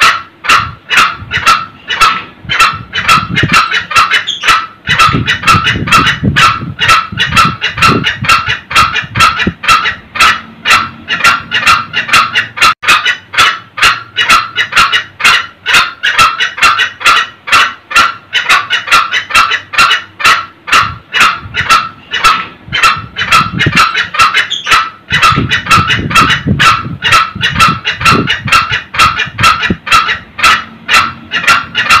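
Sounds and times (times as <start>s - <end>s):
junglefowl cackling: 0.0s - 32.0s.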